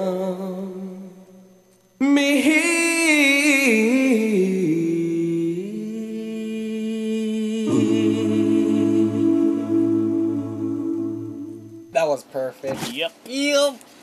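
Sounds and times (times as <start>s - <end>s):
men singing a cappella: 2.0s - 11.9s.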